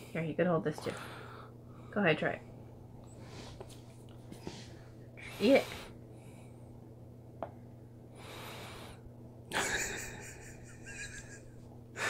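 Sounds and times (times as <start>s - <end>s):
steady low hum: 0.0s - 12.0s
soft breath: 3.1s - 6.7s.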